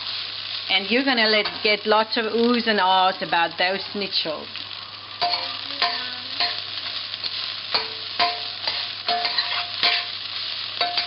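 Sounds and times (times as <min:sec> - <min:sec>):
vegetables sizzling in oil: 0:00.0 - 0:11.0
metal spoon scraping pan: 0:07.8 - 0:10.2.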